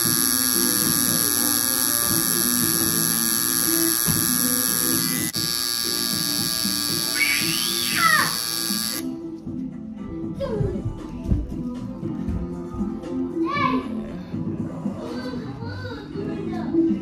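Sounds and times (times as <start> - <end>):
tattoo machine buzzing: 0.0 - 9.1.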